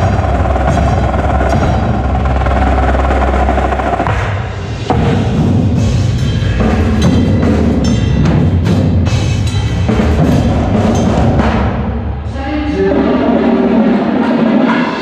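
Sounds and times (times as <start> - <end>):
marching drums: 0.0 - 12.0.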